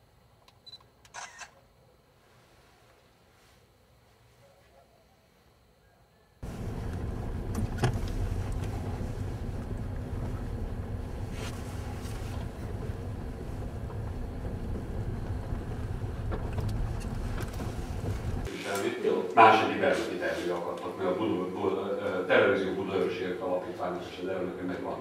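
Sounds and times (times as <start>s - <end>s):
car interior road rumble: 6.4s - 18.5s.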